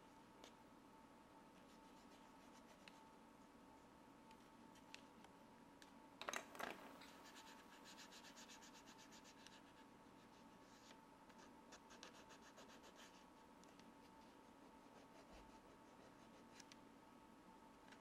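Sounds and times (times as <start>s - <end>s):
fingernail rubbing on paper: 7.1s - 9.8s.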